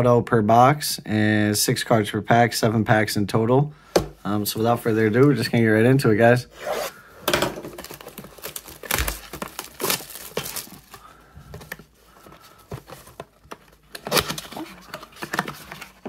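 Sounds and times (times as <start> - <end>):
plastic shrink wrap crinkling: 7.7 - 16.0
cardboard box handled: 7.8 - 16.0.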